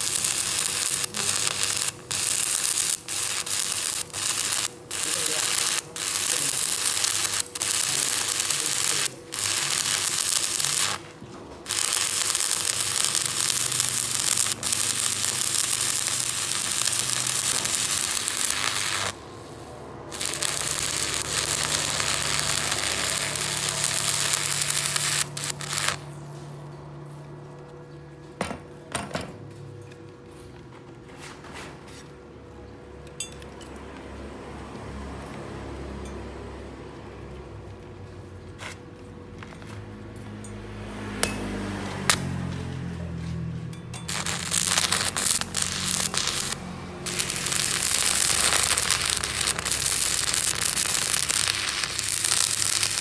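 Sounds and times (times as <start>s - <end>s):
welding arc crackling: 0.0s - 26.6s, 44.1s - 53.0s.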